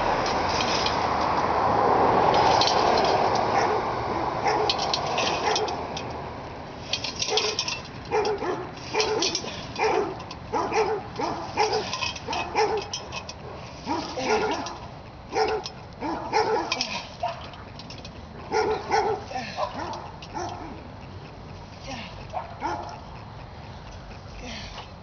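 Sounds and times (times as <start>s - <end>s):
dog barking: 3.5s - 4.8s, 5.4s - 5.8s, 7.3s - 17.5s, 18.4s - 20.8s, 22.3s - 23.0s.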